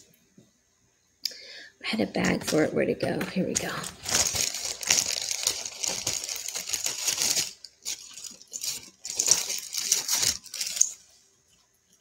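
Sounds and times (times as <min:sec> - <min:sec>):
small bag crinkling: 0:03.5 - 0:12.0
jewelry clinking: 0:03.6 - 0:12.0.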